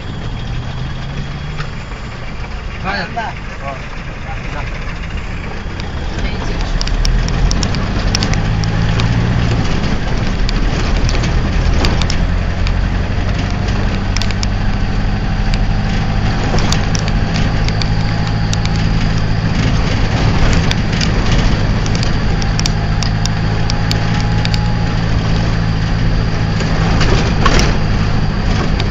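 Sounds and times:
vehicle engine humming: 0:00.0 - 0:28.9
clicks and rattles: 0:03.9 - 0:28.9.

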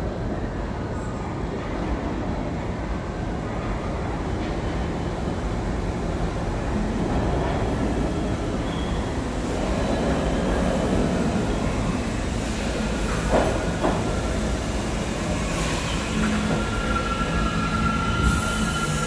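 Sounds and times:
subway train wheels rumbling: 0:00.0 - 0:19.0
high wheel squeal: 0:15.3 - 0:19.0.

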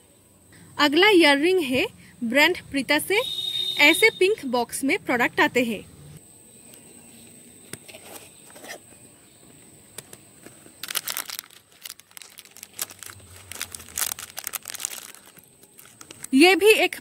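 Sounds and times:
plastic wrapping crinkling: 0:10.5 - 0:16.4.

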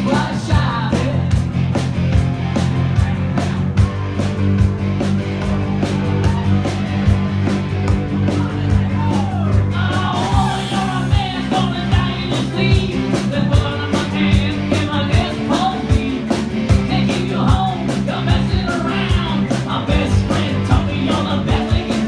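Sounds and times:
man singing into a microphone: 0:00.0 - 0:01.4, 0:09.7 - 0:22.0
drums: 0:00.0 - 0:22.0
electric guitar: 0:00.0 - 0:22.0.

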